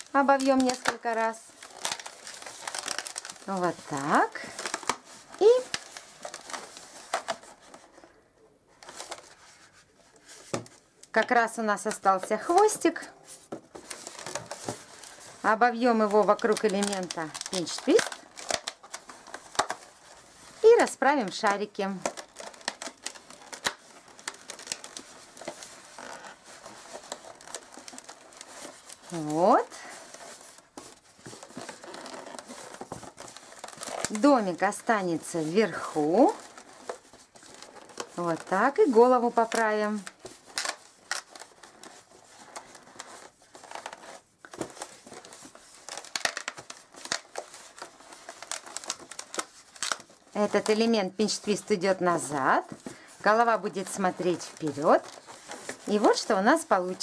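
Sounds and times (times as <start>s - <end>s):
balloons creaking and rubbing: 0.0s - 57.0s.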